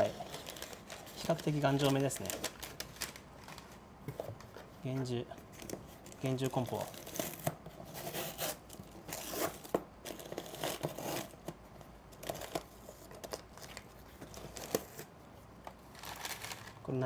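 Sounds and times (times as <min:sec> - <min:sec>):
packaging tearing and crumpling: 0:15.9 - 0:16.8.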